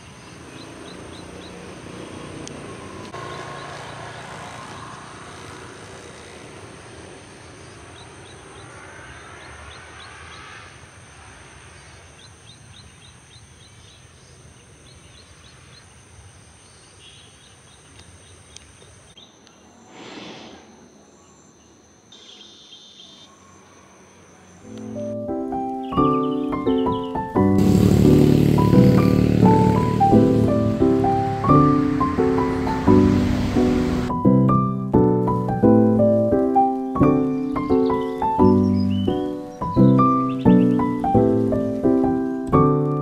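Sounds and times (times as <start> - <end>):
insects droning: 0.0 - 43.0
brief rushing burst: 19.8 - 20.9
rapid chirps: 25.9 - 34.2.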